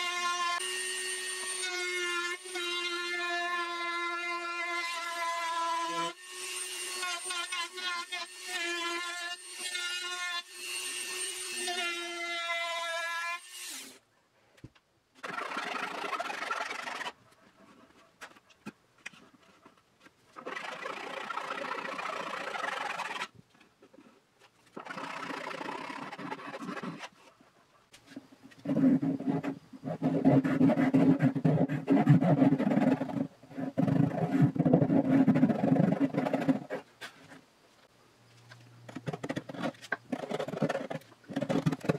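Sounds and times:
hand tool rubbing wood: 24.7s - 37.4s.

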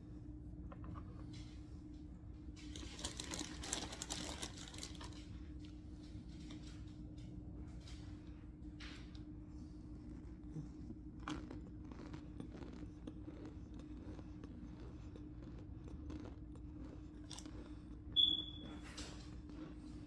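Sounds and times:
cornstarch crunching: 2.6s - 5.3s, 9.9s - 18.0s
high squeak-like tone: 18.2s - 18.8s.

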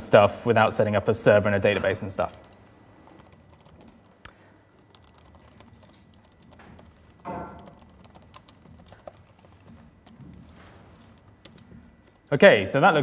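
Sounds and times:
laptop keyboard typing: 2.2s - 12.3s.

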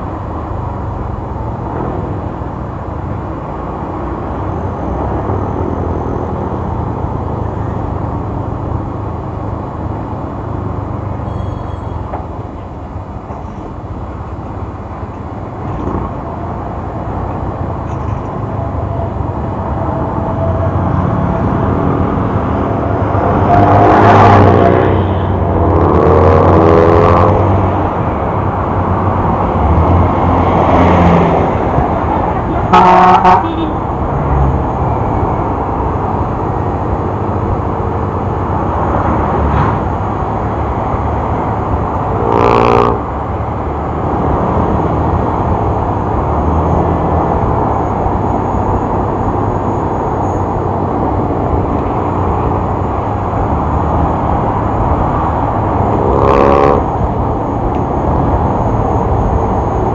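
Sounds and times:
traffic noise: 0.0s - 59.9s
wind: 0.0s - 59.9s
vehicle horn blasts: 11.2s - 12.1s, 32.7s - 33.8s.

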